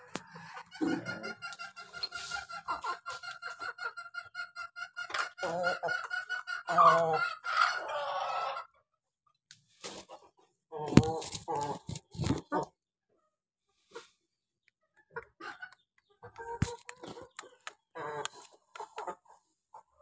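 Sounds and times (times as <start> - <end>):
chickens clucking: 0.0 - 8.9, 9.8 - 12.8, 13.8 - 20.0
chicken squawks: 0.3 - 8.8.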